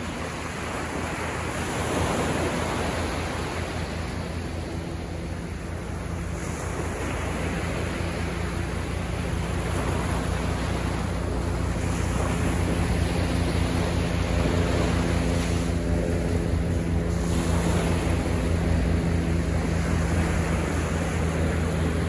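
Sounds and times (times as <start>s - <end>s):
small waves breaking on sand: 0.0s - 22.0s.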